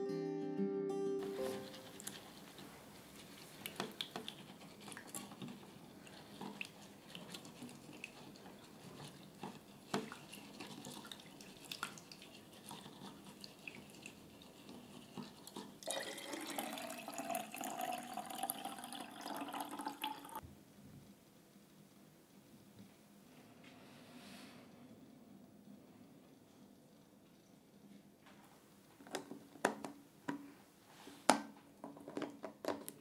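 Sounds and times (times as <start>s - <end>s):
liquid pouring into a glass jar: 15.8s - 20.4s.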